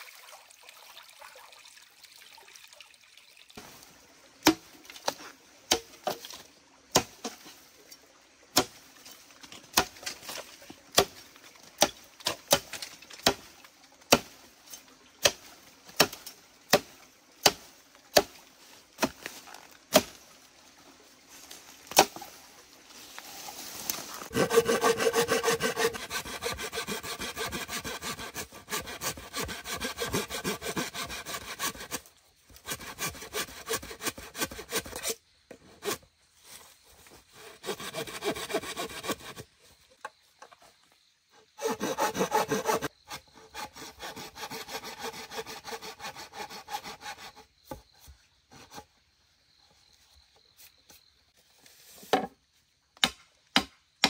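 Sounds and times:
hand saw cutting wood: 24.2s - 36.0s, 37.2s - 39.5s, 41.4s - 47.8s.

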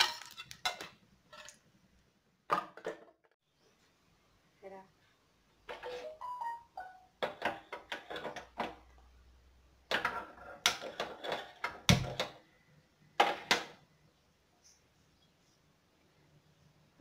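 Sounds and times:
kitchen things clicking and knocking: 0.0s - 1.8s, 2.4s - 3.4s, 5.6s - 6.2s, 7.2s - 9.1s, 9.8s - 12.5s, 13.1s - 13.9s.

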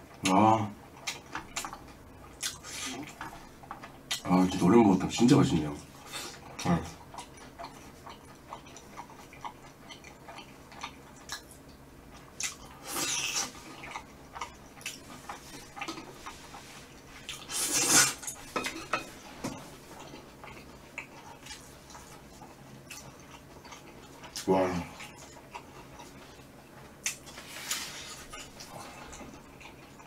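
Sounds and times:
chewing: 0.9s - 30.0s.

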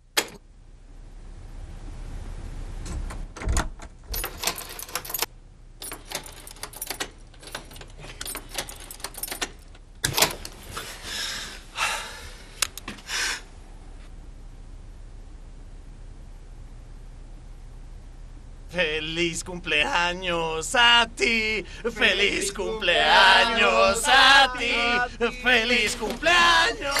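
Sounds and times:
keys jangling and clicking in locks: 4.1s - 10.5s.

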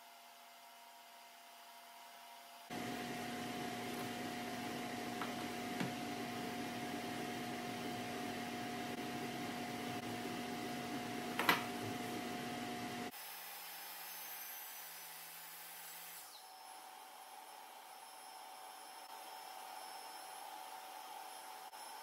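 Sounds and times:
machine humming: 2.7s - 13.1s.

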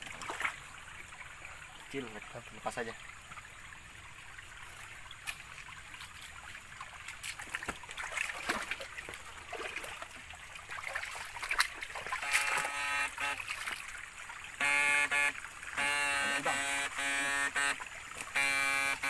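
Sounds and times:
stream trickling over rocks: 0.0s - 19.0s
boots wading over wet stones: 4.6s - 14.0s, 18.1s - 18.4s.

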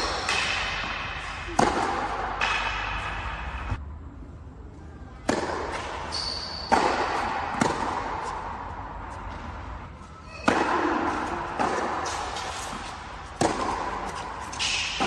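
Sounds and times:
tennis balls struck by rackets: 0.0s - 3.8s, 5.2s - 15.0s.

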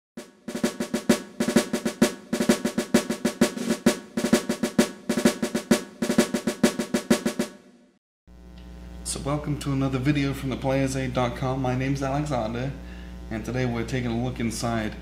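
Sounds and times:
rapid snare drum rolls: 0.2s - 7.6s.

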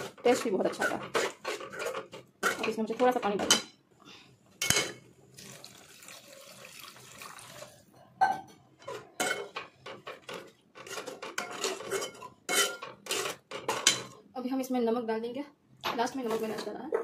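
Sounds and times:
metal ladle scraping pan: 0.0s - 3.6s, 8.9s - 14.0s
water pouring into gravy: 5.4s - 7.8s.

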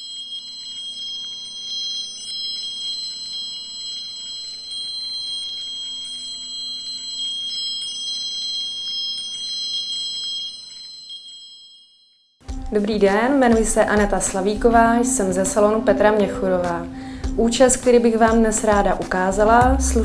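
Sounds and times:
high chime tones: 0.0s - 20.0s
light tinkling: 0.0s - 20.0s
low steady hum: 13.7s - 20.0s.

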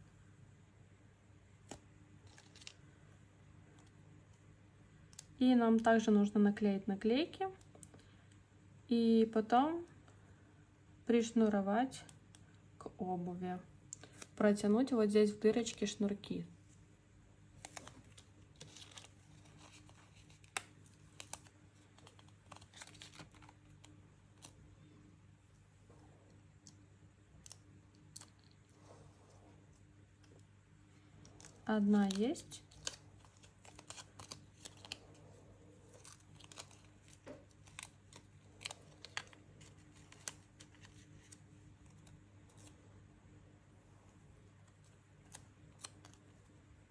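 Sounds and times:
sticker sheet rustling: 1.7s - 2.8s, 17.6s - 24.6s, 31.2s - 42.7s.

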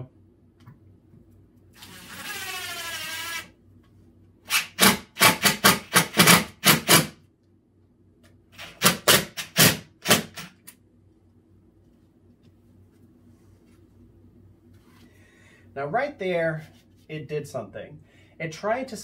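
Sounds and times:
impact driver rapid bursts: 1.8s - 3.5s, 4.5s - 7.2s, 8.6s - 10.6s.

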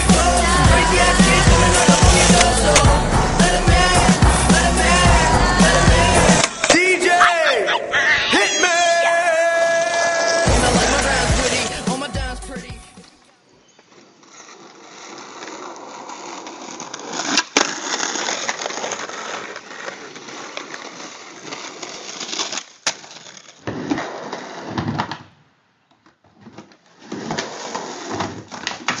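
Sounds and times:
skateboard wheels rolling on pavement: 0.0s - 6.9s, 9.1s - 29.0s
skateboard clacks: 1.2s - 3.0s.

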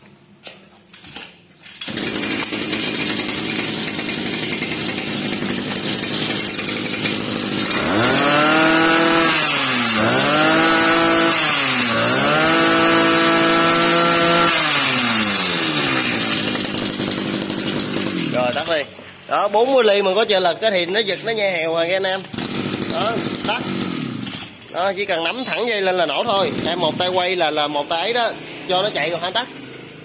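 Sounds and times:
brush cutter engine revving: 1.8s - 19.2s, 20.3s - 30.0s.

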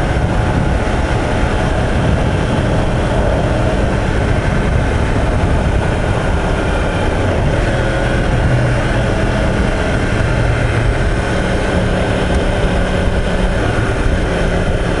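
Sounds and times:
motorcycle engine cruising: 0.0s - 15.0s
road noise: 0.0s - 15.0s
wind rush: 0.0s - 15.0s.

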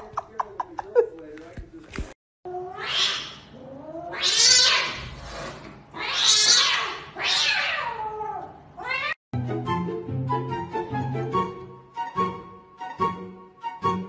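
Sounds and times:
cat yowling: 2.5s - 5.0s, 6.0s - 9.2s.

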